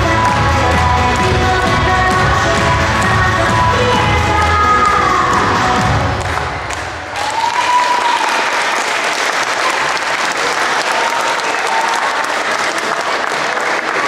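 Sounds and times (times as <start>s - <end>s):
audience applause: 4.4s - 14.0s.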